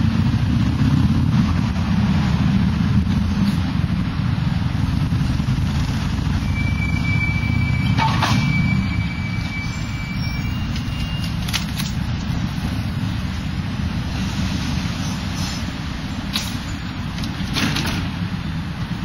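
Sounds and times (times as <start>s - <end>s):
traffic rumble: 0.0s - 19.0s
thin high tram squeal: 6.4s - 11.6s.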